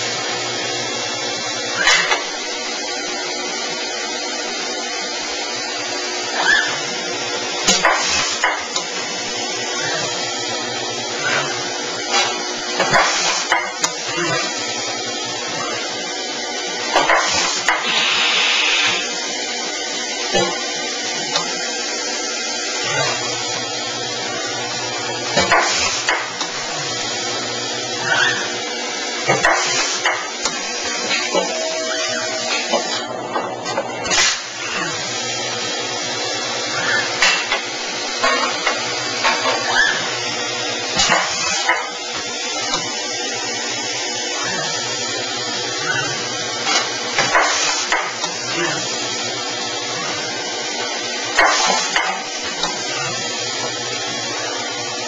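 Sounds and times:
steady machine noise: 0.0 - 55.0
steady machine hiss: 17.3 - 19.2.

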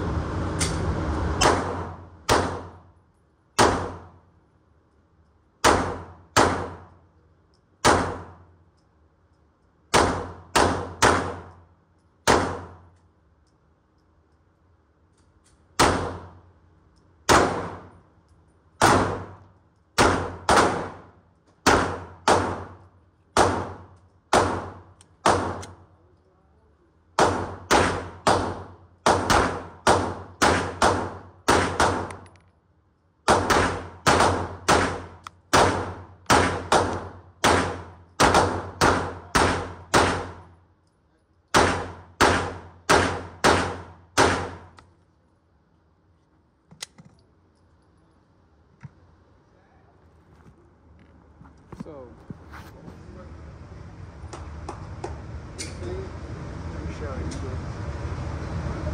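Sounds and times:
pistol shots echoing indoors: 1.4 - 4.2, 5.5 - 7.0, 7.8 - 13.3, 15.6 - 18.0, 18.7 - 25.8, 27.2 - 32.2, 33.2 - 40.6, 41.4 - 44.8.

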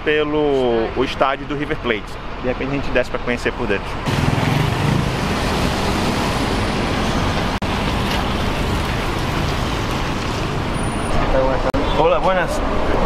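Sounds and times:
street traffic noise: 0.0 - 13.0
bus engine running: 4.1 - 11.1.

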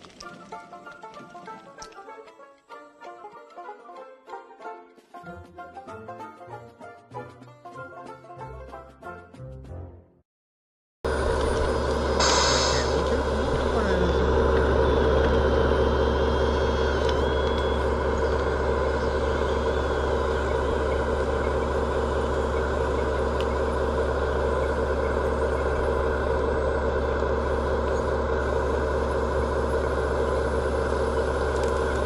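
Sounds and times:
toy loader motor drone: 11.1 - 32.0.

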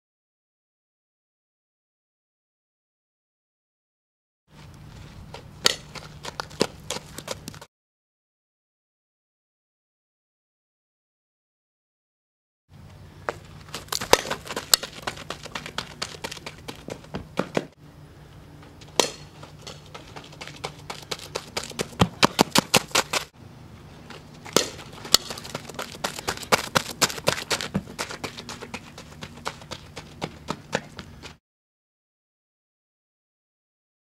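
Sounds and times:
cleats running on dirt: 4.6 - 7.7, 13.2 - 17.8, 19.0 - 23.3, 24.0 - 31.4
sharp crack: 13.7 - 16.4, 18.9 - 19.9, 24.4 - 28.2.

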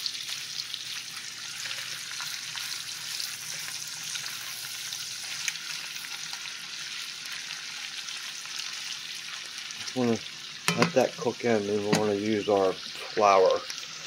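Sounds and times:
beef sizzling in a skillet: 0.0 - 14.0
spatula stirring in a pan: 0.3 - 9.9.

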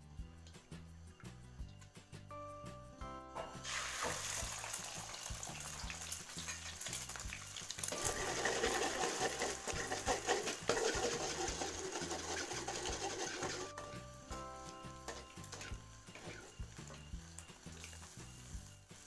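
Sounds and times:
quiet background music: 0.0 - 19.0
eggs sizzling in oil: 3.3 - 19.0
spatula scraping a pan: 7.8 - 14.1, 14.8 - 17.1.

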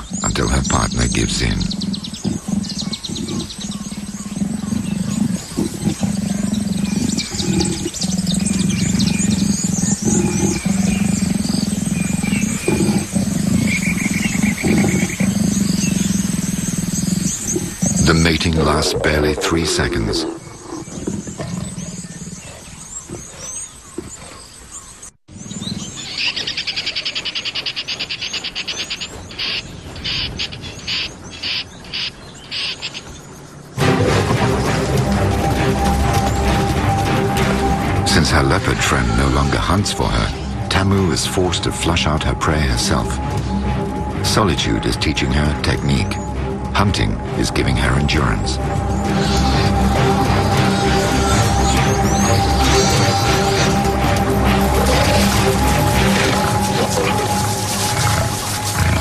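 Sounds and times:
fast chattering animal call: 0.0 - 22.5, 49.1 - 59.0
leopards growling low: 0.0 - 27.2, 33.7 - 59.0
birds chirping: 0.0 - 59.0.

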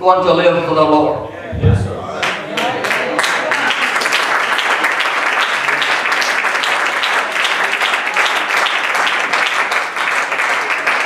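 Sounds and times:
congregation clapping: 2.1 - 11.0.

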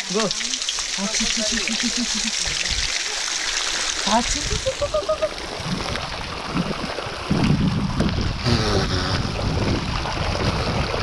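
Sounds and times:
water pouring and splashing: 0.0 - 11.0
wind noise on microphone: 4.2 - 11.0.

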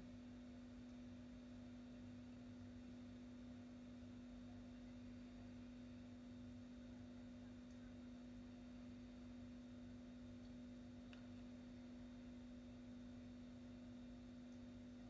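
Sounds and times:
faint steady hum: 0.0 - 15.0
faint tick: 10.4 - 11.5.

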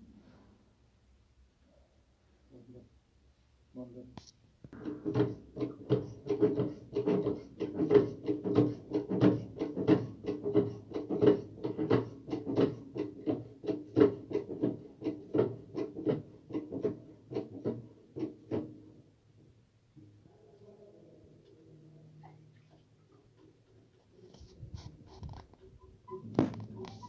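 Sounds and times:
hand pump clacking strokes: 4.8 - 18.8, 23.4 - 27.0.

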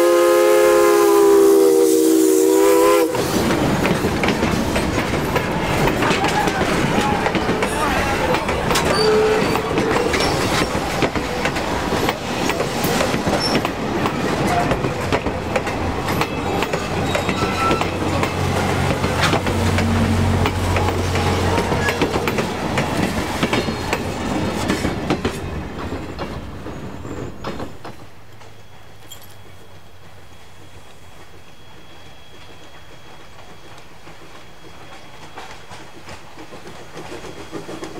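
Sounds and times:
train coaches rumbling past: 0.0 - 37.9
wheels clattering over rail joints: 3.4 - 29.5
wheel squeals: 8.7 - 10.9, 13.3 - 13.8, 16.1 - 18.4, 20.8 - 22.6, 26.6 - 27.8.

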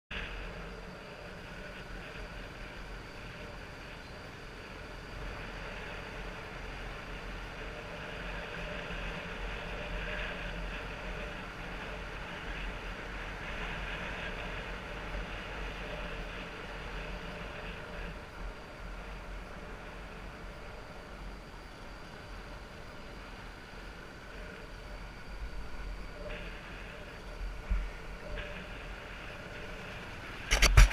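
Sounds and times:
wind on microphone: 24.3 - 30.9.

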